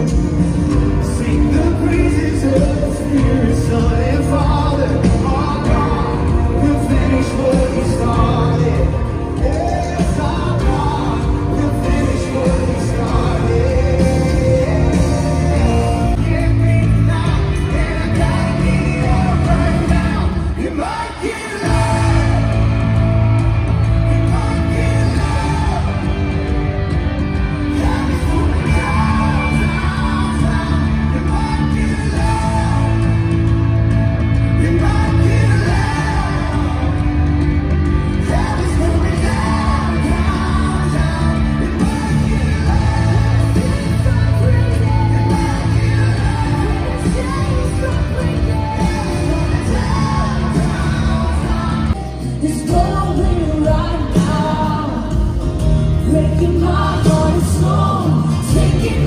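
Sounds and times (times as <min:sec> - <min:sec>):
live band and singers: 0:00.0 - 0:59.0
crowd shouting: 0:34.2 - 0:52.0.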